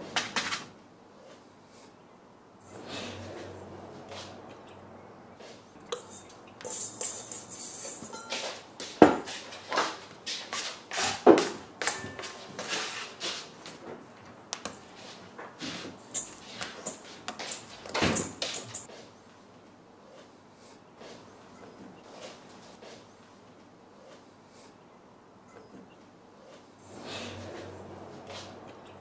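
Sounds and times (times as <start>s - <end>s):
metal bowl on wooden board: 11.8s - 13.0s.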